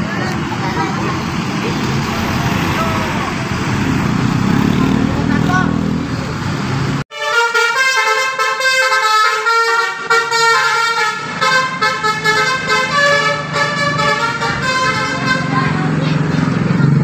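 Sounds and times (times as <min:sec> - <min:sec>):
bus horn playing a melody: 0:07.1 - 0:15.8.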